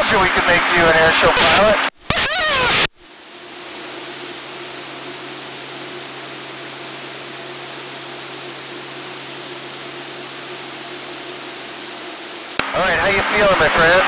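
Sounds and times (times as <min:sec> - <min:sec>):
low hum: 0:02.9 - 0:13.4
airplane engine and rushing air: 0:03.0 - 0:13.3.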